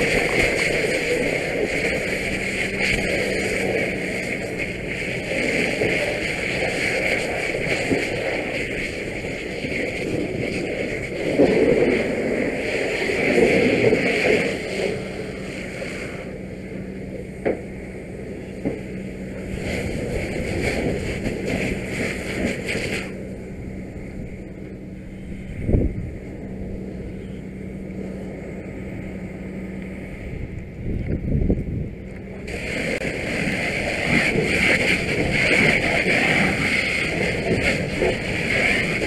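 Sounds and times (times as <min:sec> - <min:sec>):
steam hissing: 0:00.0 - 0:16.4, 0:19.3 - 0:23.2, 0:32.4 - 0:39.0
fire hose spray rushing: 0:00.0 - 0:25.8, 0:32.3 - 0:39.0
pump hum: 0:00.0 - 0:39.0.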